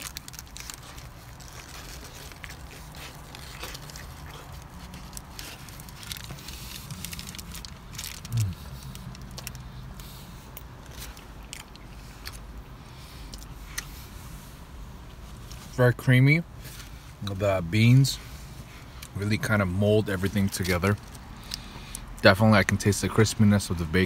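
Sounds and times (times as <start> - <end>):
person chewing food: 0.0 - 14.4
low hum of voice: 8.3 - 8.8.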